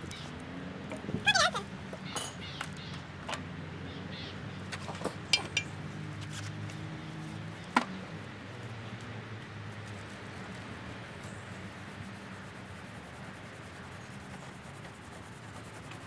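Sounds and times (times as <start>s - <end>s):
bird chirp: 2.0s - 3.1s.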